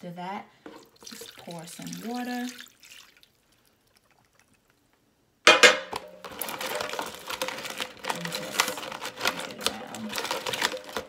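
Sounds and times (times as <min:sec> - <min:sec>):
water splashing: 0:00.7 - 0:04.8
crab shells clattering in tub: 0:05.5 - 0:11.0.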